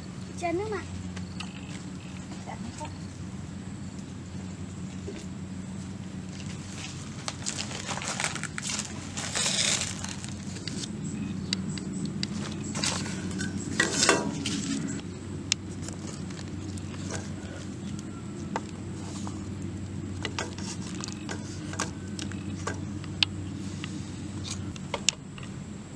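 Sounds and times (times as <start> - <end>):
steady low hum: 0.0 - 25.9
dry palm leaves rustling: 4.1 - 11.1, 12.2 - 24.7
loud scrapes: 7.5 - 10.4.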